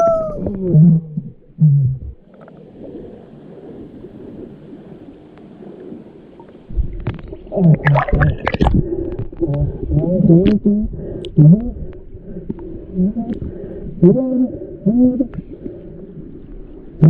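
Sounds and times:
muffled underwater rumbles and gurgles: 0:00.0 - 0:17.0
underwater clicks: 0:06.4 - 0:13.6.

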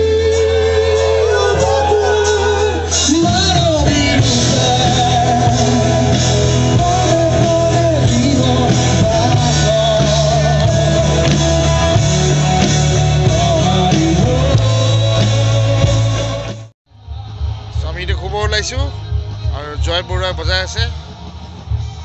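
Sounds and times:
electric guitars: 0:00.0 - 0:16.7
person singing: 0:00.0 - 0:16.7
bass notes: 0:00.0 - 0:22.0.

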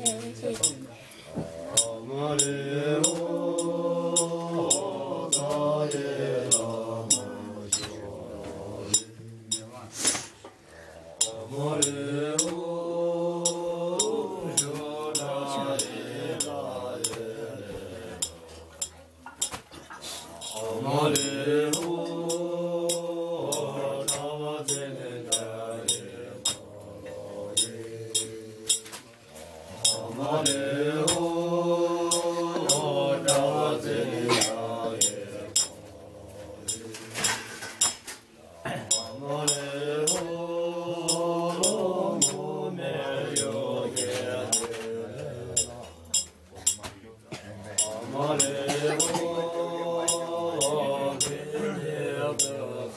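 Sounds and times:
man chanting: 0:00.0 - 0:19.0, 0:20.2 - 0:37.7, 0:38.4 - 0:52.9
cups and dishes clinking: 0:18.2 - 0:31.2, 0:32.1 - 0:35.9, 0:36.7 - 0:40.3, 0:43.3 - 0:49.4.

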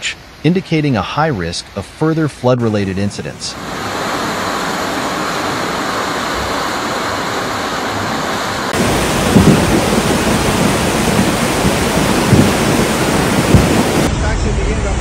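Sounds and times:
floodwater rushing: 0:02.6 - 0:14.1
mountain river rushing: 0:02.6 - 0:14.1
low thumps: 0:08.8 - 0:14.1.

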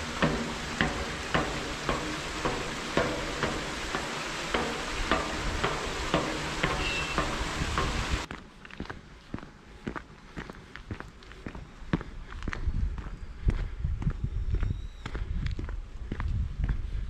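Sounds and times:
stream rushing: 0:00.0 - 0:08.3
footsteps on a trail: 0:00.0 - 0:17.0.

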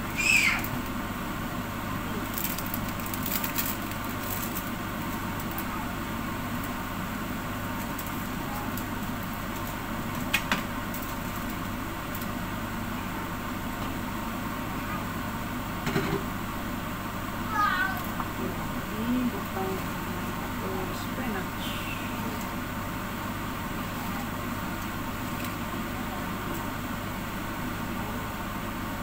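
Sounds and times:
broth boiling in a lidded pot: 0:00.0 - 0:29.0.

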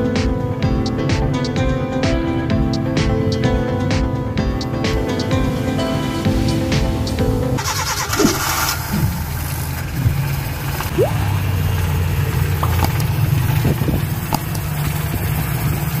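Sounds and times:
car engine idling: 0:05.0 - 0:16.0.

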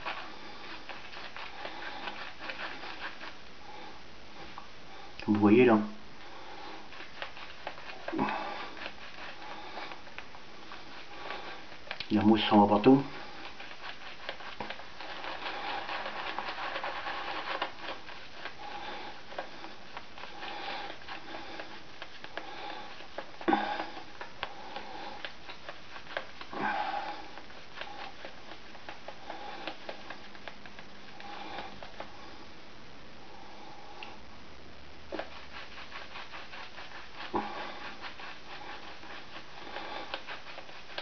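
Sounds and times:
shaving brush rubbing lather: 0:00.0 - 0:04.6, 0:05.3 - 0:32.5, 0:35.1 - 0:41.0.

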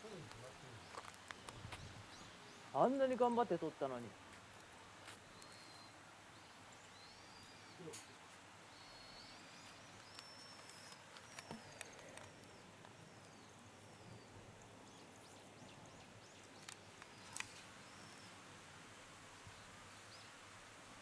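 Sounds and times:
faint bird chirps: 0:05.2 - 0:18.4
small clicks: 0:10.0 - 0:13.0, 0:16.6 - 0:17.7.

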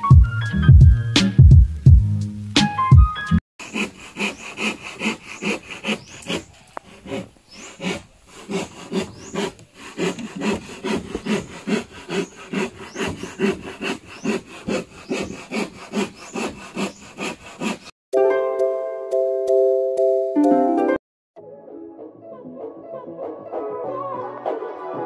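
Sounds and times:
hand saw cutting plywood: 0:03.6 - 0:18.0.

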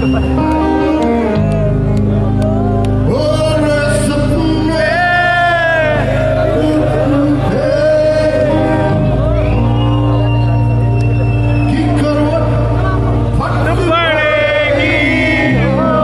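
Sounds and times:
live band accompaniment: 0:00.0 - 0:16.0
man singing long notes: 0:03.0 - 0:09.3, 0:11.8 - 0:16.0.

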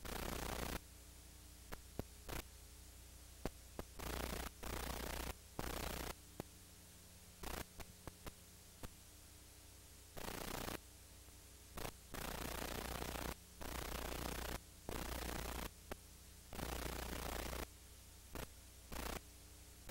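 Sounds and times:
low electrical hum: 0:00.0 - 0:19.9
static hiss bursts: 0:00.0 - 0:19.9
sharp clicks: 0:07.4 - 0:08.4.

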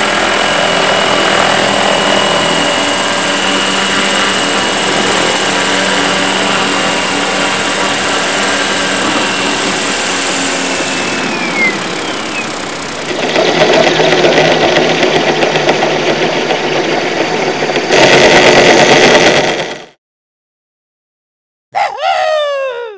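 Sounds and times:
model helicopter hovering: 0:00.0 - 0:20.0
rough buzzing: 0:02.6 - 0:16.7.

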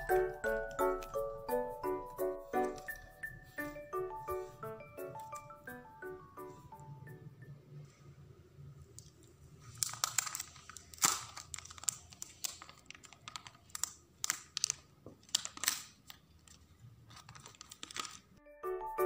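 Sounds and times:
plastic film crackling: 0:09.6 - 0:18.4.

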